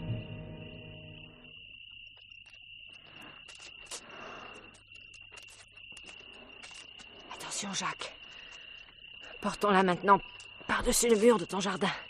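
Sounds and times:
brass music: 0:00.0 - 0:01.4
crickets trilling: 0:00.0 - 0:12.0.

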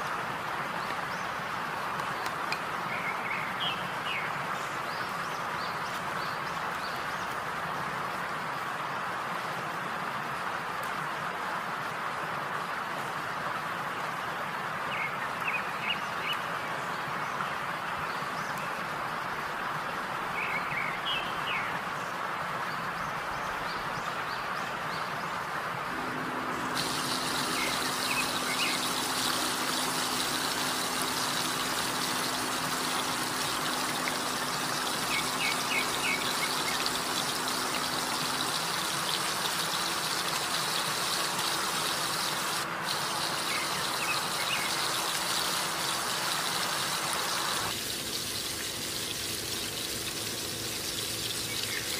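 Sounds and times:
steady hiss: 0:25.8 - 0:51.9
steady low hum: 0:25.9 - 0:38.9
oil sizzling in a wok: 0:26.6 - 0:51.9.

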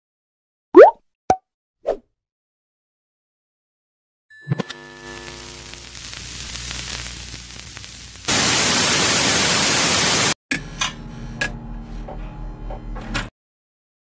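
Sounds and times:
low buzz: 0:04.5 - 0:09.3
tv static hiss: 0:04.7 - 0:10.4.

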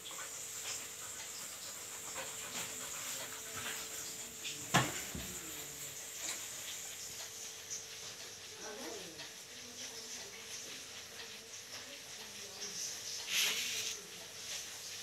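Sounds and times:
dog panting and sniffing: 0:00.0 - 0:08.5.

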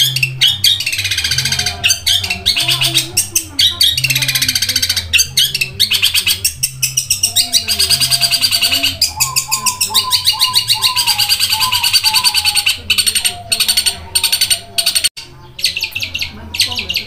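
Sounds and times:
bird singing rapid high chirps: 0:00.0 - 0:17.0.

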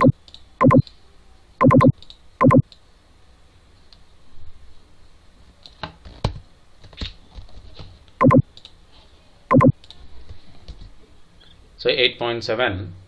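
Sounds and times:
keyboard typing clicks: 0:00.0 - 0:00.9, 0:01.6 - 0:02.7, 0:08.2 - 0:08.7, 0:09.5 - 0:09.9.

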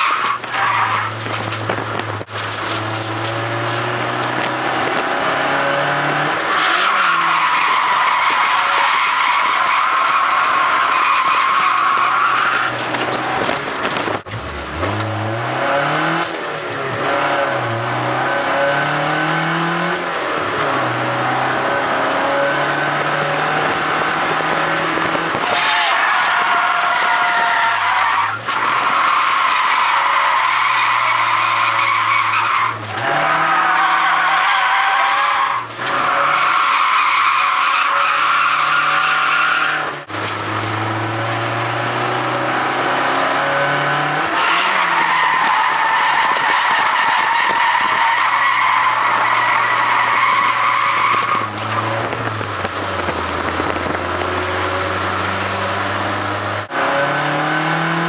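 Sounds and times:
tyres squealing: 0:00.0 - 0:01.7, 0:06.4 - 0:13.3, 0:25.4 - 0:40.6, 0:44.2 - 0:52.2
car engine revving: 0:00.0 - 0:58.0.

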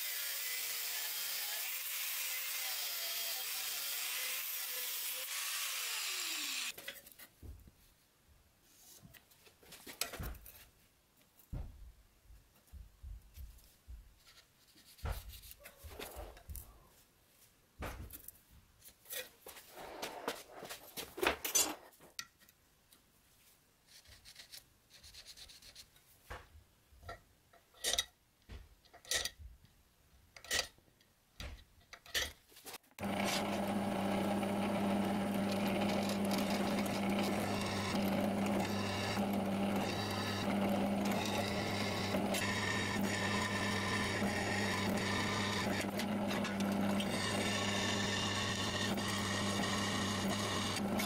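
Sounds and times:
drill bit cutting metal: 0:33.0 - 0:51.0
drill press humming: 0:33.0 - 0:51.0.

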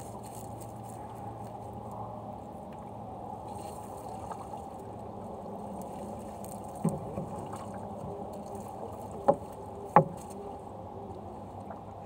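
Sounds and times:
wet fishing net hauled in: 0:03.4 - 0:10.8
water trickling: 0:03.4 - 0:12.0
sharp knocks against boat: 0:06.7 - 0:08.2, 0:09.0 - 0:10.5.

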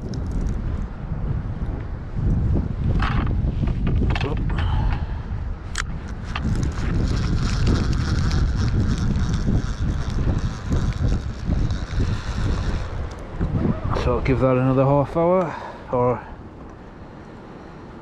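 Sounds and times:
wind buffeting microphone: 0:00.0 - 0:18.0
sharp clicks: 0:05.7 - 0:13.2
fishing reel winding: 0:06.1 - 0:13.2.

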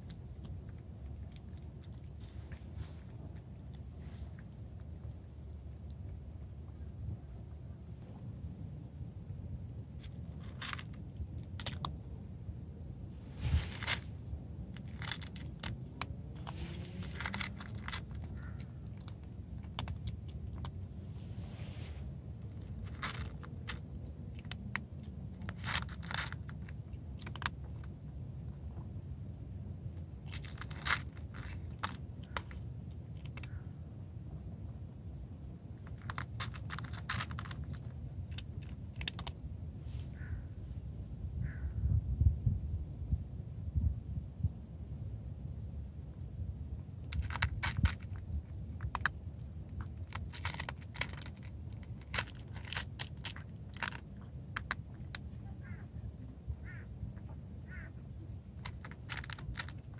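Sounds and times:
cat crunching dry food: 0:00.0 - 0:07.6, 0:08.4 - 0:12.3, 0:13.2 - 0:33.5, 0:35.2 - 0:39.5, 0:47.0 - 0:55.6, 0:58.2 - 0:59.9
low steady rumble: 0:00.0 - 0:59.9.

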